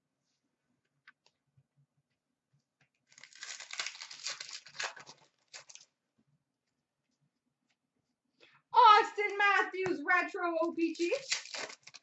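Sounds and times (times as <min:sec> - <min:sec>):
card pack wrapper tearing: 0:03.1 - 0:05.9, 0:11.0 - 0:12.0.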